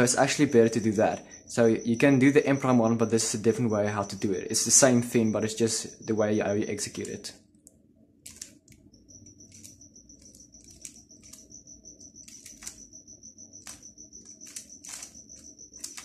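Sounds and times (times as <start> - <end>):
thin high-pitched whine: 0.0 - 7.4, 8.3 - 16.0
plastic puzzle cube clicking: 8.2 - 8.8, 9.5 - 11.5, 12.2 - 12.8, 13.6 - 16.0.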